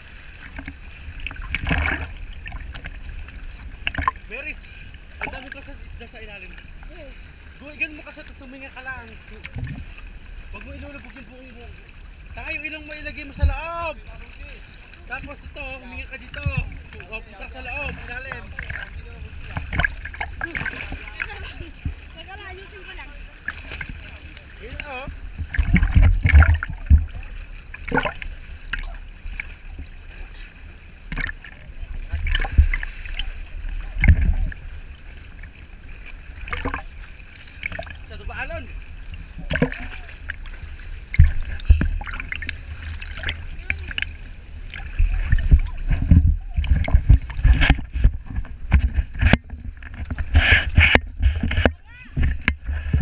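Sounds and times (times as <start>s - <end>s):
sea water sloshing and splashing: 0.0s - 53.0s
low buffeting thumps: 23.8s - 29.0s, 37.6s - 53.0s.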